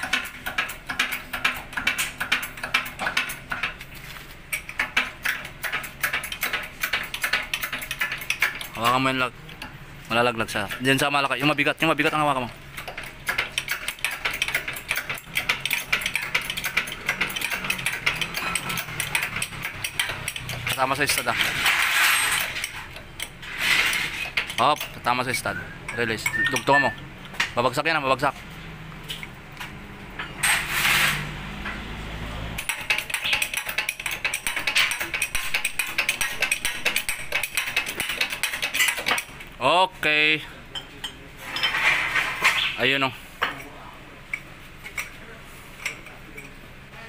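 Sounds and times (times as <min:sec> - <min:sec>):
hydraulic press clicks and rattles: 0:00.0 - 0:09.8, 0:10.5 - 0:27.6, 0:32.6 - 0:39.5.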